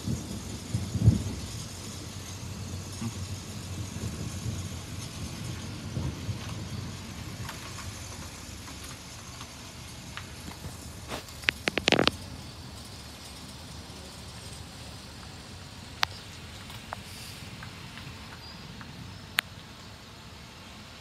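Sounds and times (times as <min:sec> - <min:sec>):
rolling thunder: 0:00.0 - 0:09.2
steady hiss: 0:00.0 - 0:21.0.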